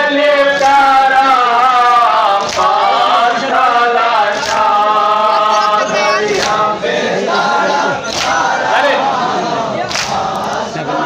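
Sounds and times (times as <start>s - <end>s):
men chanting in unison: 0.0s - 11.0s.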